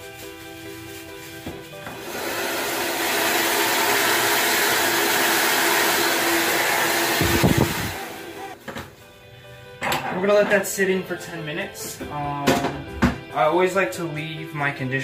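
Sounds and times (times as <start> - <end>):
hair dryer blowing air: 1.9 - 8.6.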